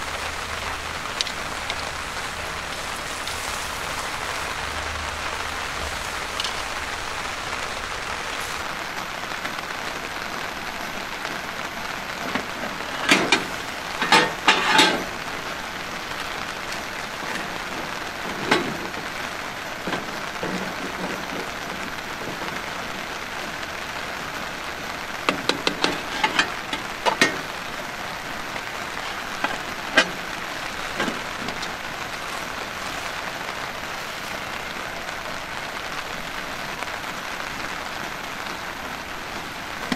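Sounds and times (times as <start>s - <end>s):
steady rain falling: 0.0s - 39.9s
cooking utensils clattering: 12.4s - 15.2s, 25.3s - 27.6s, 28.8s - 31.8s.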